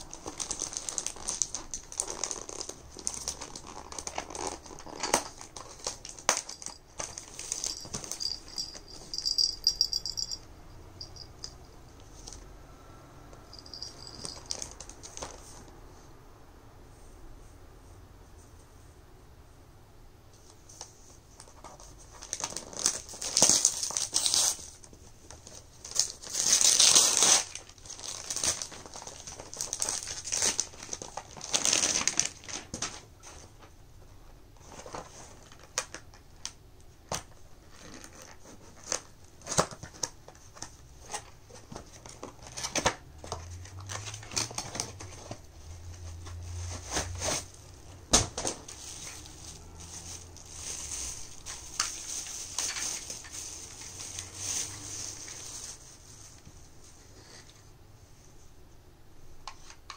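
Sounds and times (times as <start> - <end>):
wrapping paper tearing: 0.0 - 6.6, 22.1 - 24.8, 25.5 - 32.7
plastic packaging crinkling: 0.0 - 10.3, 21.4 - 33.1, 37.6 - 56.5.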